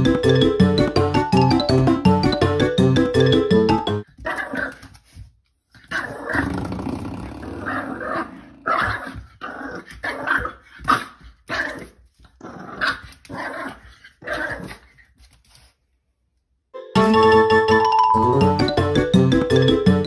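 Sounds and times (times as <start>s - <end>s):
small dog growling: 5.8s - 10.6s.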